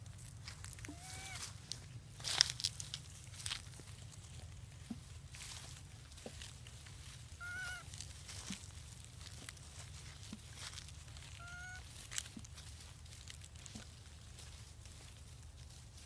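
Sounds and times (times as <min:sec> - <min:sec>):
macaque calls: 0:00.9 - 0:01.4, 0:07.4 - 0:07.9, 0:11.3 - 0:11.9.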